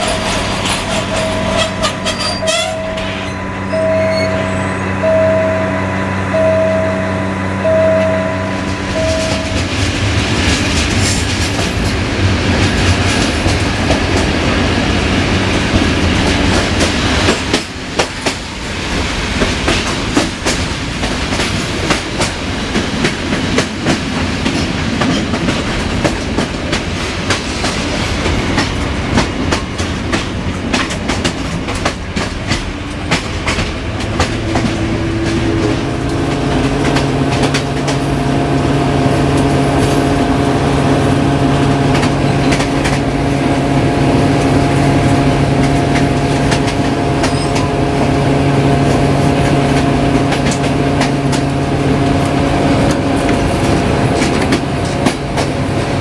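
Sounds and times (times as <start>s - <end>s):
train wheels clattering: 0.0s - 5.4s, 7.9s - 56.0s
humming drone: 0.0s - 10.2s, 33.4s - 56.0s
train rumble: 0.0s - 56.0s.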